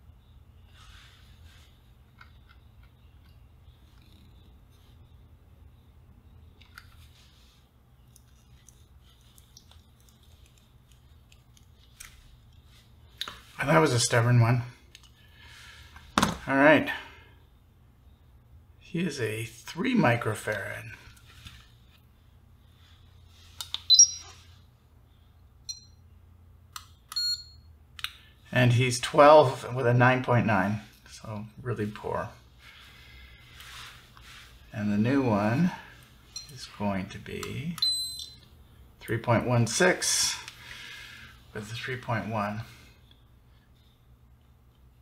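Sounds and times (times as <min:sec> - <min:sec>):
low steady hum: 0:00.0 - 0:45.0
short high electronic beep: 0:23.9 - 0:24.3.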